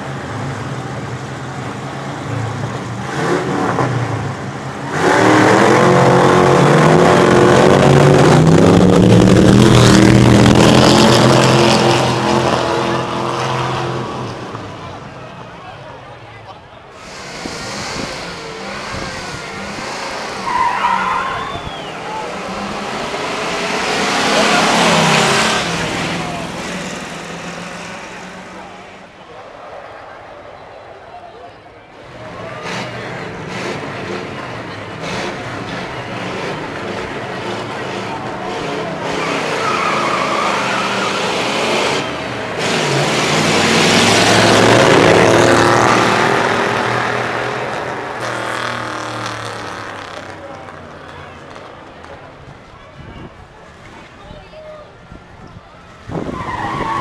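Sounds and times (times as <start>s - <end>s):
cars racing past: 0.0s - 16.0s, 16.9s - 53.1s
hot rod engines accelerating: 0.0s - 54.2s
tire squeal: 17.0s - 22.7s, 37.5s - 42.2s, 55.8s - 57.0s.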